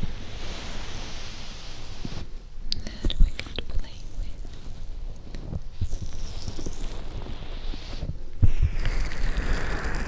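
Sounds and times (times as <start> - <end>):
fingers rubbing microphone fur: 3.4 - 10.0.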